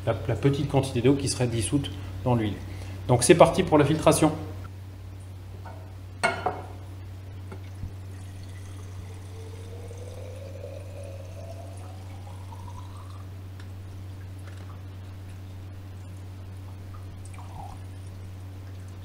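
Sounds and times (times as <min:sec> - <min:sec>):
steady low hum: 0:00.0 - 0:19.0
oil trickling into glass flask: 0:07.6 - 0:13.4, 0:17.2 - 0:18.2.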